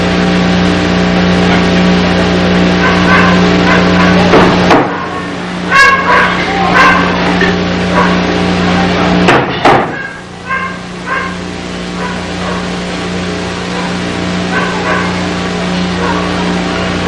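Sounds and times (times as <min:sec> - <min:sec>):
low hum: 0:00.0 - 0:17.0
dog barking: 0:02.8 - 0:07.2, 0:07.9 - 0:08.3, 0:09.8 - 0:12.8, 0:13.6 - 0:15.3, 0:15.9 - 0:16.5
sharp loud knocks: 0:04.3 - 0:05.0, 0:09.3 - 0:10.0.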